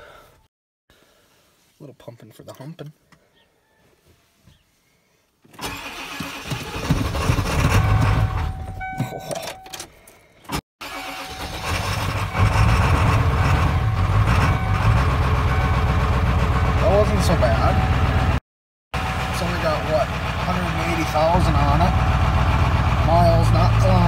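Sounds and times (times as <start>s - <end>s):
diesel engine cranking and idling: 5.6s - 9.7s, 10.8s - 18.4s, 19.0s - 24.0s.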